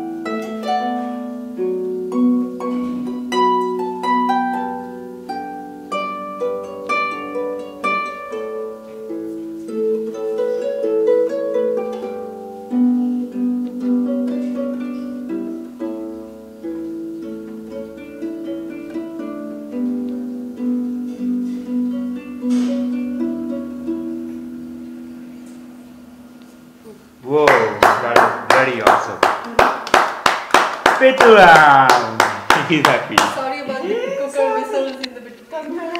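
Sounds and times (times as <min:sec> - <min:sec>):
small harp plucked melody: 0:00.0 - 0:28.6.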